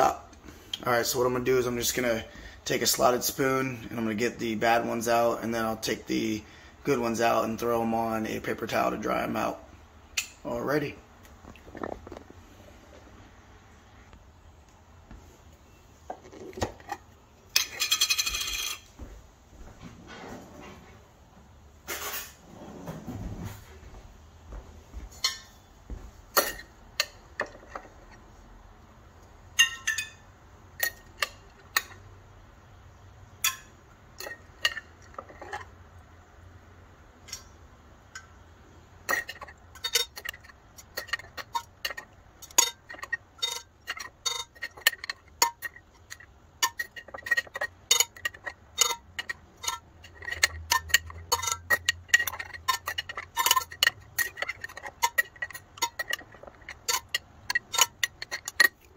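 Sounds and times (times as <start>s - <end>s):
metal spoon clinking on glass jar: 29.6s - 30.2s, 39.1s - 58.9s.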